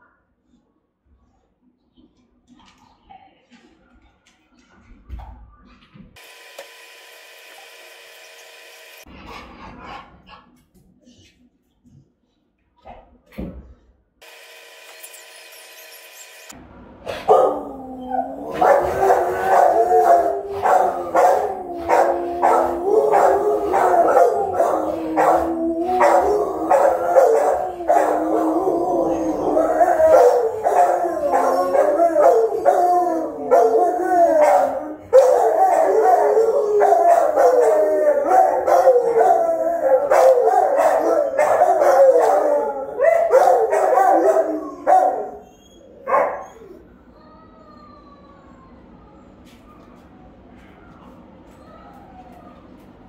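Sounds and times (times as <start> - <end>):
dogs barking sharply: 17.1 - 17.7, 18.5 - 28.4, 40.0 - 45.4
dogs howling and yelping: 17.3 - 52.8.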